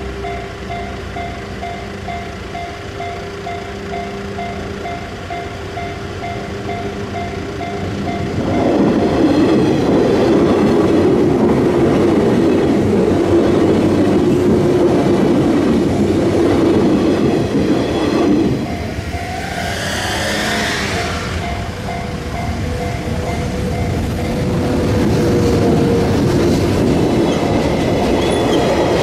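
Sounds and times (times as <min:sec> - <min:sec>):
train wheels rumbling on rails: 0:00.0 - 0:29.0
level crossing alarm ringing: 0:16.8 - 0:26.0.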